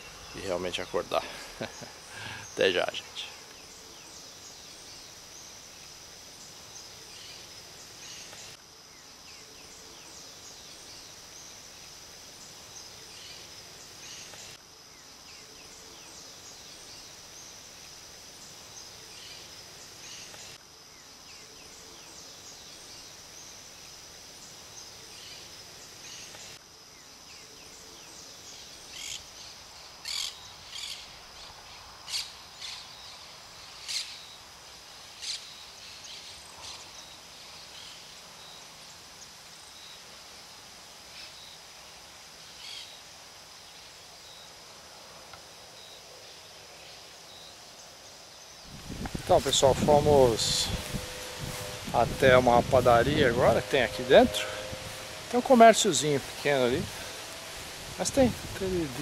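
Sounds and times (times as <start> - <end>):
high insect trill: 0.0 - 59.0.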